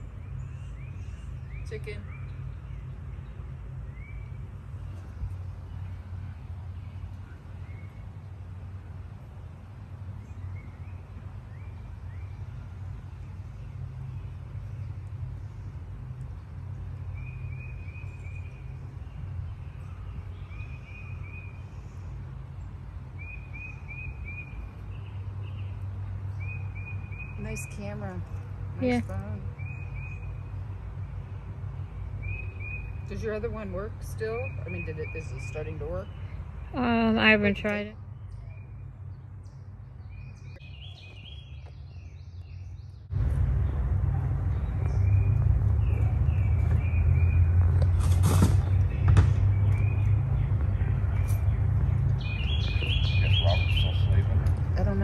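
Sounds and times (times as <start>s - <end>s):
low outdoor rumble: 0.0s - 55.0s
rumble and hiss on microphone: 0.0s - 55.0s
small birds chirping: 0.0s - 55.0s
low rumble: 42.7s - 55.0s
songbird whistling: 52.2s - 54.2s.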